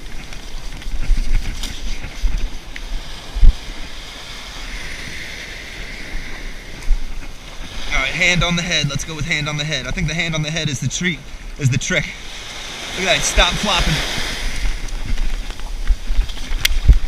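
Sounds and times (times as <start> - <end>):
ocean surf washing on sand: 0.0 - 17.0
wind buffeting microphone: 0.0 - 17.0.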